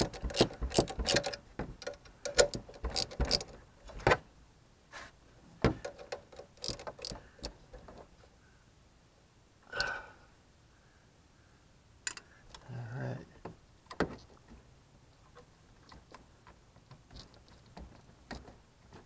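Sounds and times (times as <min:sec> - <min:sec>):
ratchet wrench clicking: 0:00.0 - 0:03.5, 0:05.9 - 0:07.5.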